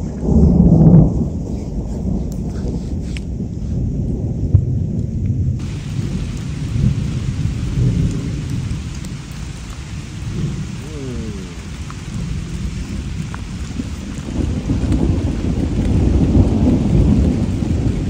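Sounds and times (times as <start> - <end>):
thunder rumbling: 0.0 - 18.0
rain hissing: 5.5 - 18.0.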